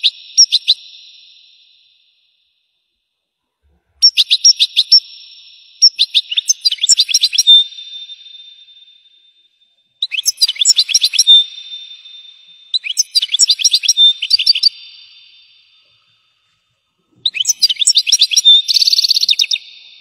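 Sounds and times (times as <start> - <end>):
goldfinch twittering song: 10.0 - 15.6, 17.2 - 19.8.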